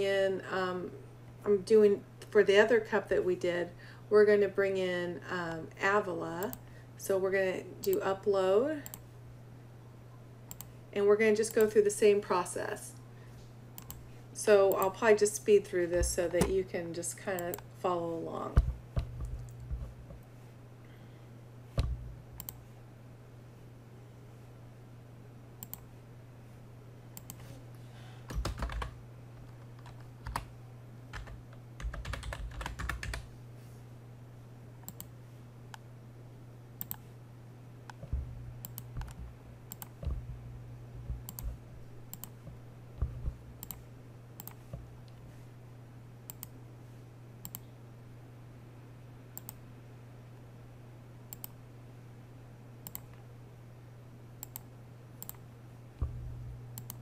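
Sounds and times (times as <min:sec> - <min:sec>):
low electrical hum: 0:00.0 - 0:57.0
computer mouse clicks: 0:08.8 - 0:09.0, 0:10.5 - 0:10.7, 0:13.8 - 0:14.0, 0:17.4 - 0:17.6, 0:21.8 - 0:22.6, 0:25.6 - 0:25.9, 0:27.2 - 0:27.4, 0:34.8 - 0:35.1, 0:36.8 - 0:37.1, 0:37.9 - 0:40.2, 0:41.2 - 0:42.3, 0:43.0 - 0:43.8, 0:44.4 - 0:45.2, 0:46.3 - 0:46.5, 0:47.4 - 0:47.7, 0:49.4 - 0:49.6, 0:51.3 - 0:51.6, 0:52.8 - 0:53.2, 0:54.4 - 0:55.4, 0:56.8 - 0:57.0
keyboard typing: 0:21.8 - 0:22.6, 0:28.3 - 0:30.5, 0:31.1 - 0:33.3, 0:37.9 - 0:40.3, 0:41.0 - 0:42.3, 0:43.6 - 0:43.8, 0:52.8 - 0:53.2, 0:56.8 - 0:57.0.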